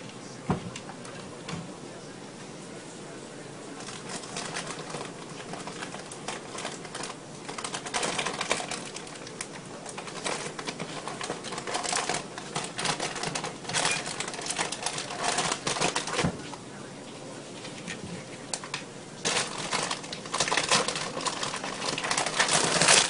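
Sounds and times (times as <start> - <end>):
rustling and scratching: 3.7 - 23.0
cat rummaging in cabinet: 3.8 - 16.6, 17.6 - 23.0.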